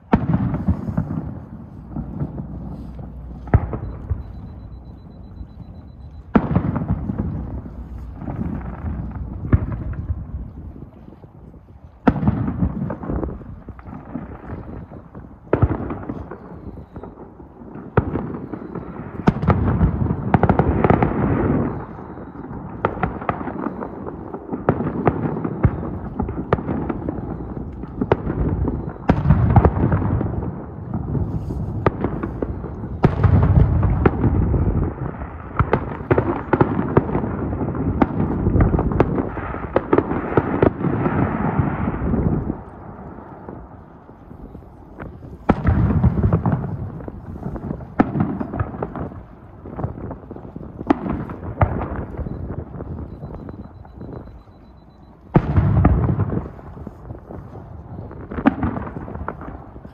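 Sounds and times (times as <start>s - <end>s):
low rumble: 0.0s - 11.5s
firework bangs and crackles: 0.0s - 59.9s.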